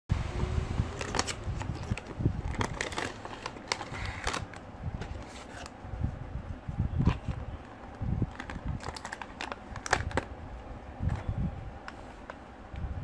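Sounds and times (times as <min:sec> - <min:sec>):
cardboard and plastic rustling: 0:00.9 - 0:06.1, 0:06.8 - 0:10.4, 0:11.0 - 0:12.5.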